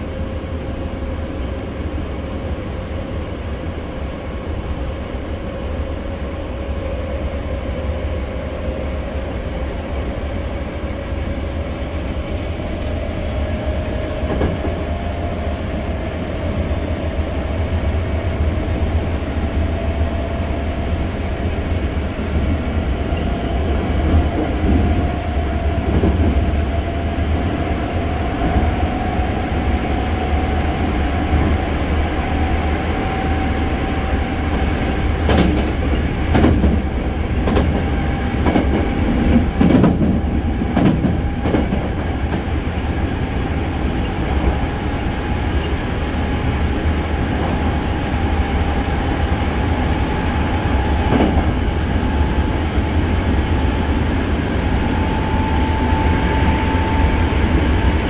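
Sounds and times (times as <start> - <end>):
train wheels rumbling on rail: 0.0 - 58.0
sharp wheel clacks over joints: 11.9 - 14.7.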